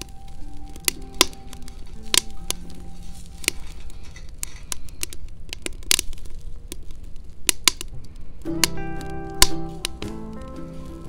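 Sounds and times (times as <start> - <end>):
sharp pops from fire: 0.0 - 11.0
wood fire crackling: 0.0 - 11.0.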